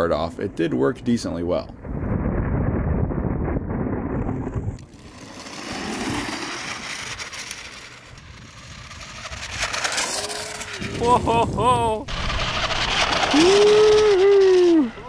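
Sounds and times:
rc tracked vehicle motors rumbling: 0:04.5 - 0:11.0.

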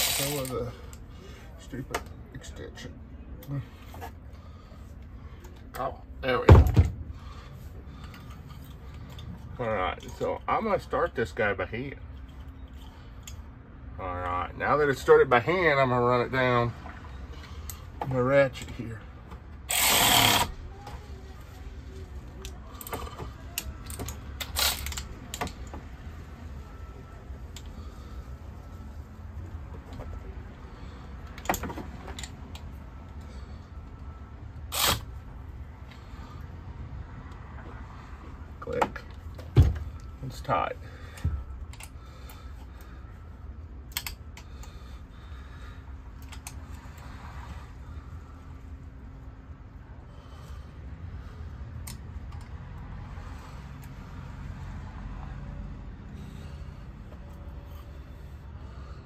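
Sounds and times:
ratchet clicks: 0:00.0 - 0:00.5, 0:19.7 - 0:20.5
low steady hum: 0:00.0 - 0:59.0.

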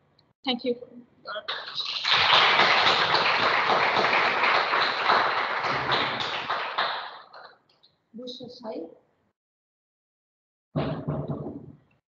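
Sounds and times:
audience applauding: 0:01.5 - 0:07.5.

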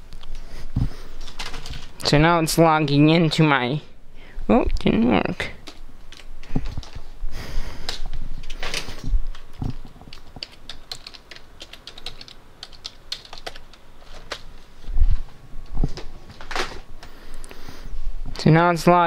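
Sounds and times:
keyboard keys clicking: 0:05.6 - 0:07.0, 0:07.8 - 0:14.5.

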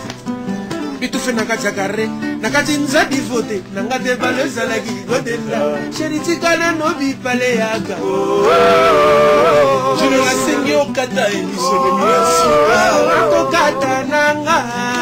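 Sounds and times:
acoustic guitars: 0:00.0 - 0:15.0
men singing in harmony: 0:04.3 - 0:06.2, 0:07.9 - 0:15.0.

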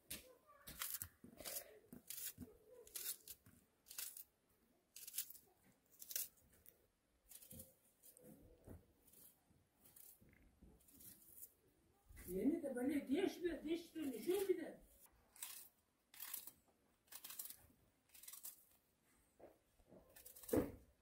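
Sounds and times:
knife cutting onion crunches: 0:00.7 - 0:06.4, 0:15.3 - 0:18.7, 0:20.1 - 0:20.6.

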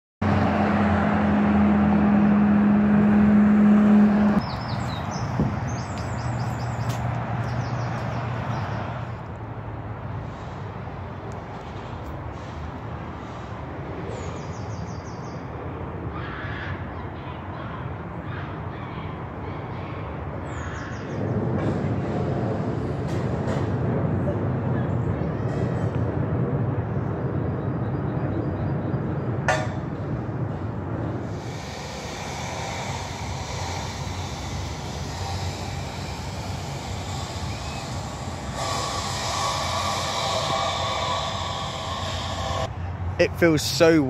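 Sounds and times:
small birds chirping: 0:04.4 - 0:08.9
low hum: 0:27.0 - 0:43.2.

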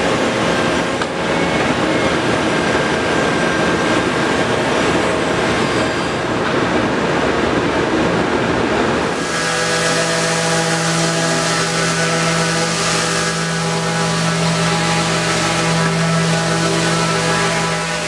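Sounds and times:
power tool machinery running: 0:09.0 - 0:18.0.

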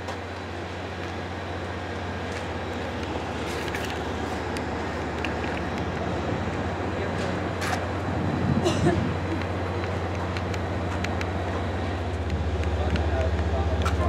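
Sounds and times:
low mechanical hum: 0:00.0 - 0:14.0.

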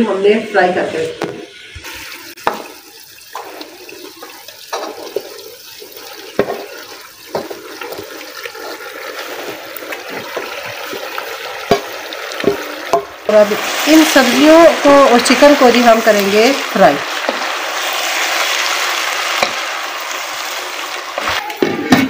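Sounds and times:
food sizzling in a pot: 0:00.0 - 0:22.0
spoon knocking against pot: 0:02.4 - 0:02.8, 0:11.7 - 0:13.1.

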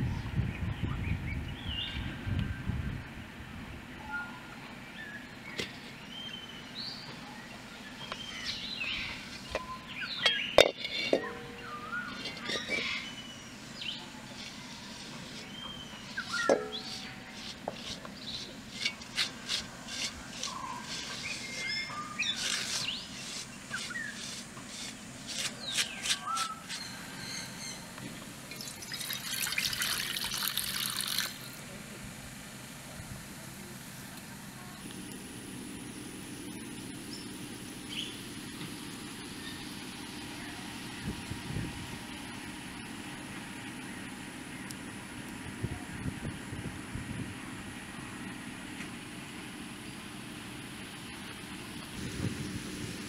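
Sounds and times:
birds chirping: 0:00.0 - 0:03.2, 0:03.9 - 0:32.7, 0:33.7 - 0:41.2
metal pan being scrubbed: 0:10.6 - 0:11.4, 0:12.0 - 0:13.2, 0:14.4 - 0:26.8
steady hissing: 0:12.2 - 0:26.1.

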